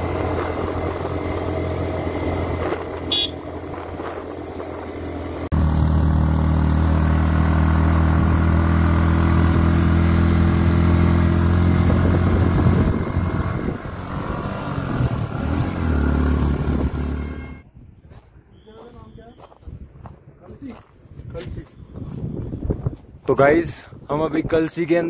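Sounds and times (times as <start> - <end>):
motorcycle engine running: 0.0 - 17.6.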